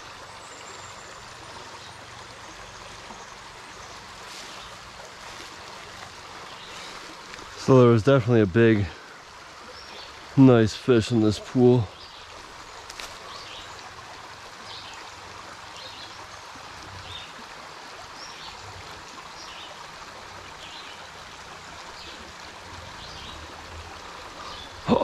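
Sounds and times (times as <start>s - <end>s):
creek flowing over gravel: 0.0s - 25.0s.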